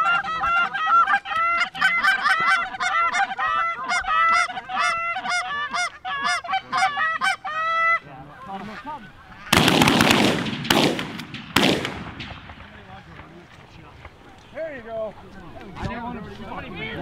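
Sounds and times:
geese honking and clucking: 0:00.0 - 0:10.1.

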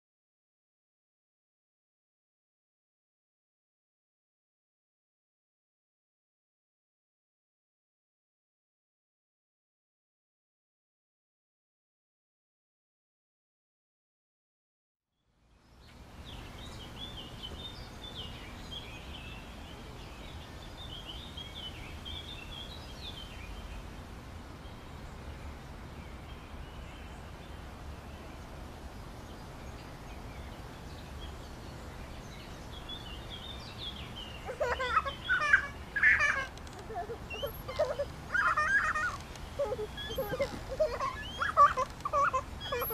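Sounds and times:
birds chirping: 0:15.6 - 0:42.9.

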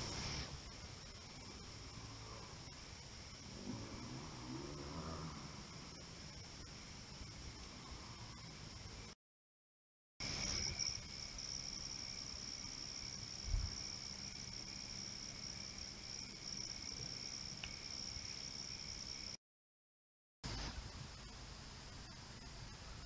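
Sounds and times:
high-pitched insect chorus: 0:00.0 - 0:09.1, 0:10.2 - 0:19.4.

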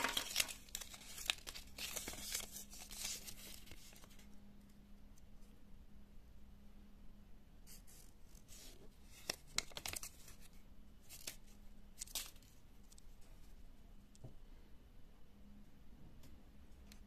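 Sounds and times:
paper leaflet rustling and crackling: 0:00.0 - 0:04.3, 0:08.4 - 0:13.0.

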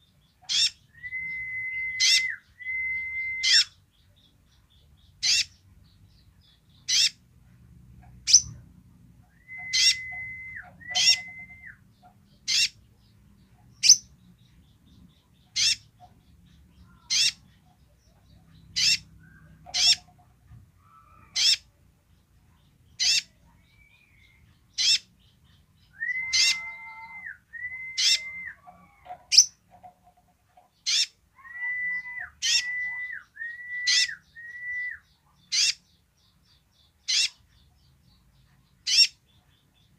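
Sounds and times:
bird chirping: 0:00.0 - 0:39.9
bird whistling: 0:00.5 - 0:03.8, 0:09.3 - 0:11.8, 0:25.9 - 0:28.7, 0:30.9 - 0:35.8.

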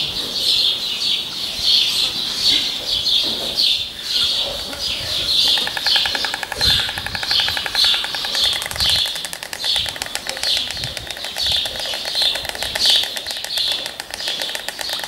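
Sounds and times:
storks clattering bills: 0:04.4 - 0:15.0.

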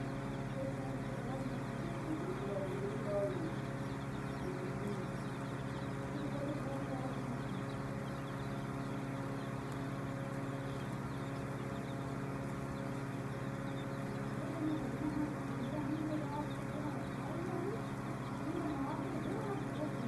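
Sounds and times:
chicks peeping: 0:00.0 - 0:20.0
motor hum: 0:00.0 - 0:20.0.

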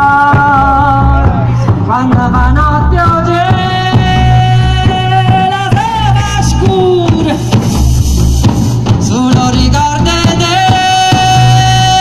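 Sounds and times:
drum kit: 0:00.0 - 0:12.0
frame drums beating: 0:00.0 - 0:12.0.

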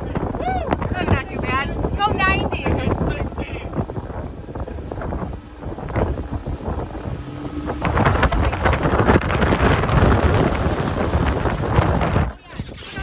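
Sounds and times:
road noise: 0:00.0 - 0:13.0
wind buffeting microphone: 0:00.0 - 0:13.0
vehicle engine: 0:02.8 - 0:13.0.

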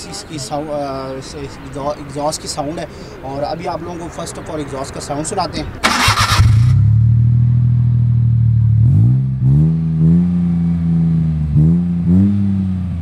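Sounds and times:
van engine revving: 0:05.8 - 0:13.0.

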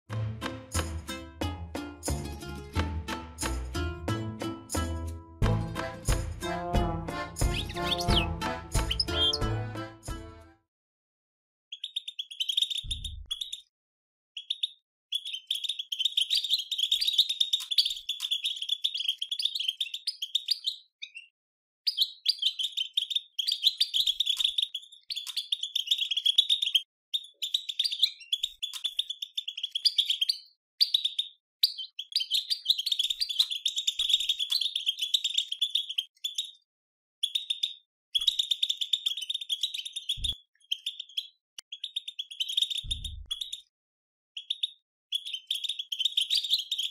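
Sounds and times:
goldfinch twittering: 0:07.4 - 0:09.5.

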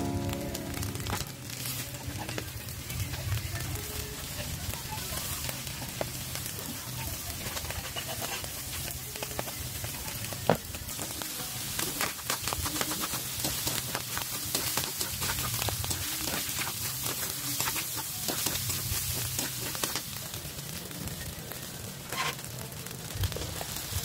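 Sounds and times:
meat sizzling in a wok: 0:00.0 - 0:24.0
metal spatula scraping a pan: 0:07.6 - 0:08.7.

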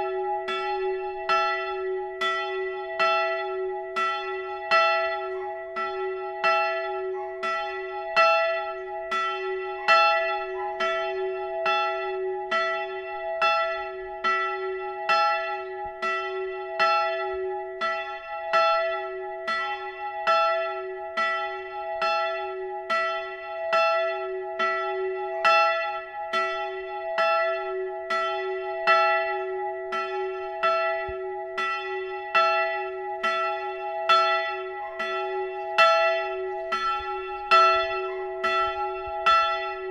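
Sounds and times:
church bell ringing: 0:00.0 - 0:39.9.

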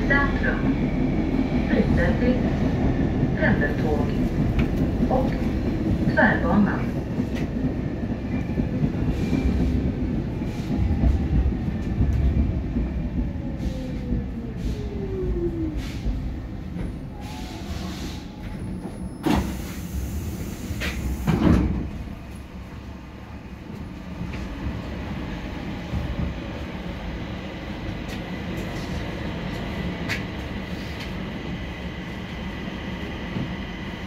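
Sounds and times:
metro train braking rumble: 0:00.0 - 0:34.0
hiss of air: 0:19.3 - 0:21.4.

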